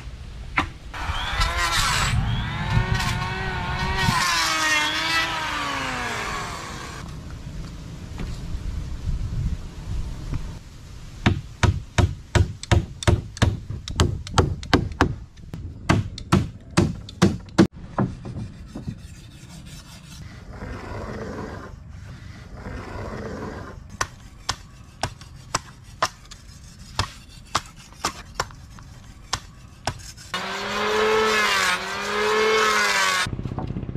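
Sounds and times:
hammer blows driving nails: 0:15.8 - 0:18.5
rasping scrapes: 0:18.0 - 0:33.3.

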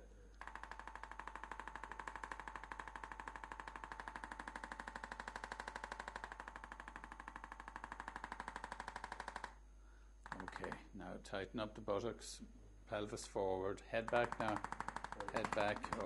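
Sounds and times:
rapid electric tapping clicks: 0:00.3 - 0:09.6, 0:10.2 - 0:10.8, 0:14.0 - 0:16.0.

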